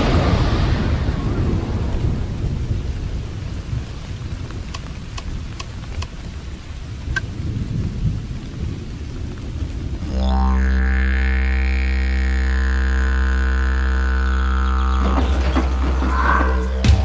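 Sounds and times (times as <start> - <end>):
rolling thunder: 0.0 - 5.9, 7.0 - 10.1
faint ticks: 4.4 - 6.3.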